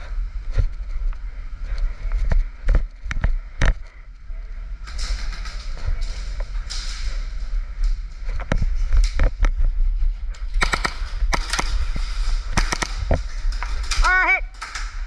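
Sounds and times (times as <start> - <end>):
steady low rumble: 0.0 - 15.0
airsoft gun shots: 10.6 - 13.2.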